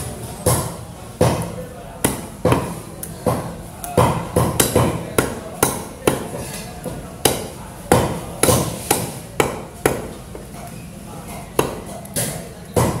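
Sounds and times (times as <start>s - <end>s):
cleaver chopping on wooden block: 0.5s - 10.1s, 11.6s - 13.0s.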